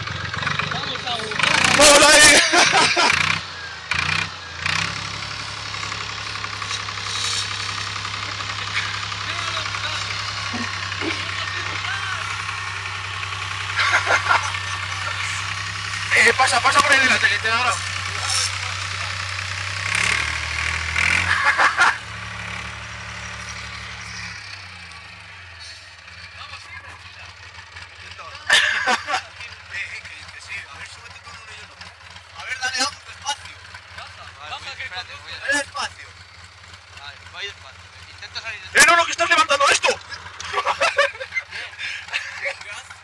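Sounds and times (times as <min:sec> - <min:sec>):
tractor diesel engine running: 0:00.0 - 0:43.0.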